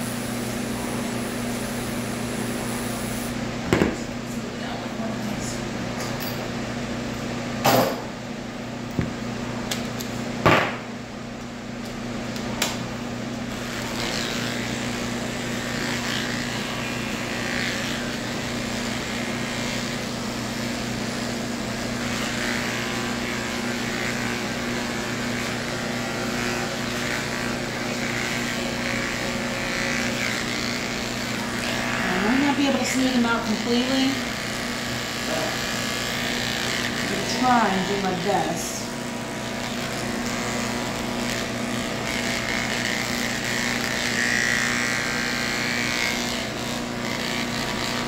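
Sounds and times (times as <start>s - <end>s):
clippers shaving through fur: 0.0s - 3.4s, 13.4s - 48.0s
electric clippers humming: 0.0s - 8.2s, 8.8s - 48.0s.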